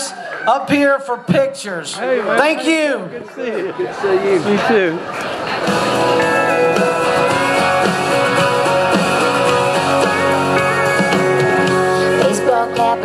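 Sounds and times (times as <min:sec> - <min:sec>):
instrumental guitar music: 0:05.3 - 0:13.0.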